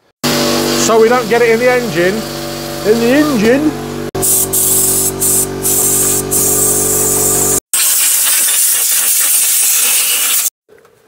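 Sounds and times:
compressed air blow gun hissing: 0:04.2 - 0:10.5.

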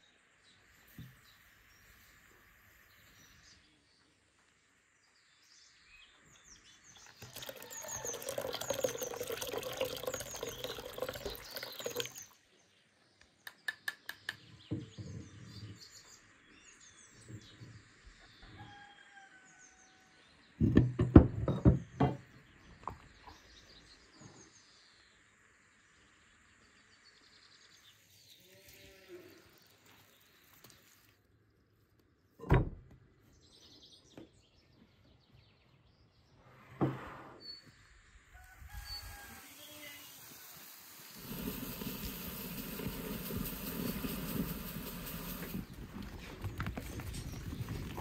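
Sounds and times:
songbirds chirping: 0:00.0 - 0:38.1, 0:41.0 - 0:48.0
liquid pouring into bowl: 0:07.0 - 0:12.4.

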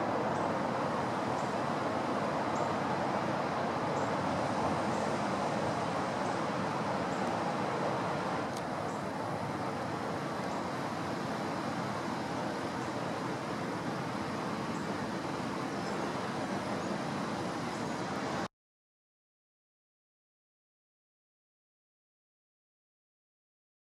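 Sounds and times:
strong wind through trees: 0:00.0 - 0:18.5.

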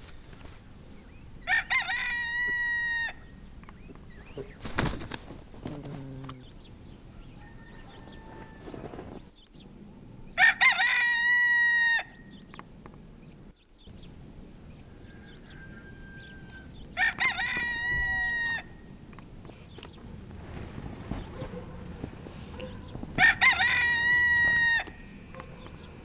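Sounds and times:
rooster crowing: 0:01.4 - 0:03.4, 0:07.0 - 0:09.2, 0:10.3 - 0:12.4, 0:14.7 - 0:19.0, 0:22.6 - 0:25.7.

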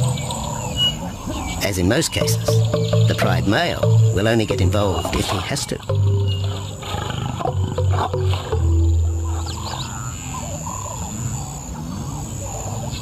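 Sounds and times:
background music: 0:02.1 - 0:09.9
lions growling: 0:04.9 - 0:13.0.

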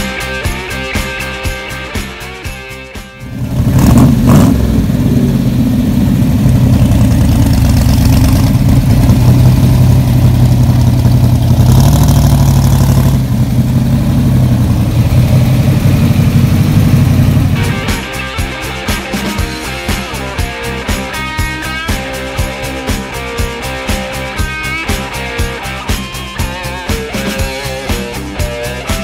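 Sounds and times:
car engine idling with low rumble: 0:03.3 - 0:17.8.

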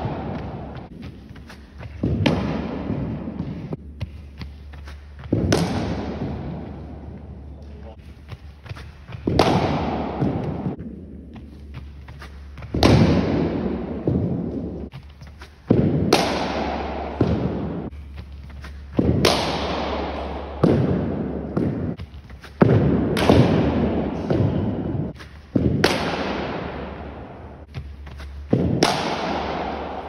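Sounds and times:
cricket bat striking ball with echo: 0:05.3 - 0:07.0, 0:09.2 - 0:11.0, 0:12.7 - 0:14.8, 0:15.7 - 0:17.9, 0:19.0 - 0:22.0, 0:22.6 - 0:27.5, 0:28.5 - 0:30.0.

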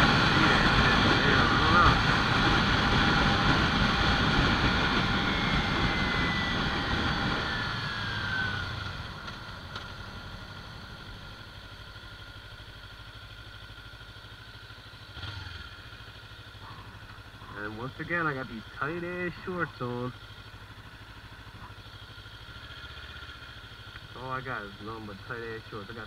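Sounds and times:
wind rush: 0:00.0 - 0:08.8
motorcycle engine: 0:00.0 - 0:26.0.

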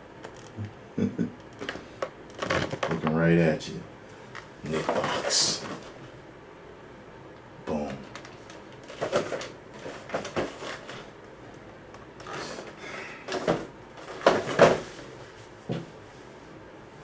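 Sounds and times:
cardboard scraping and rustling: 0:04.7 - 0:06.0, 0:08.2 - 0:11.1, 0:13.3 - 0:15.1.

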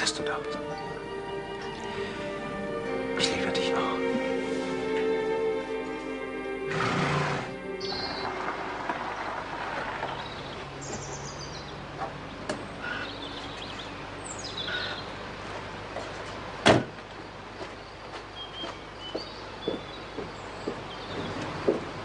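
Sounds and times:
car engine running low: 0:07.3 - 0:14.4
car door slamming: 0:16.6 - 0:17.0.

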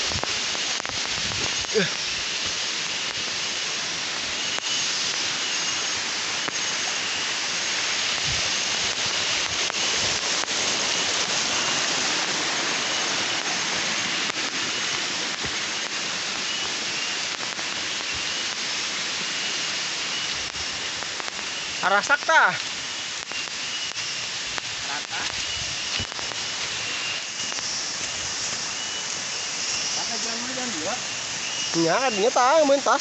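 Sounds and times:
forest insects hissing chorus: 0:00.0 - 0:33.0
faint pulsing chirp: 0:04.2 - 0:07.5, 0:15.6 - 0:22.1, 0:22.9 - 0:32.8.

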